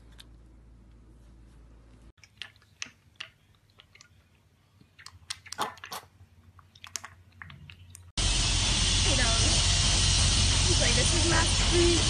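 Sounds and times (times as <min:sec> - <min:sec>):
piglet slurping milk: 0:02.2 - 0:08.1.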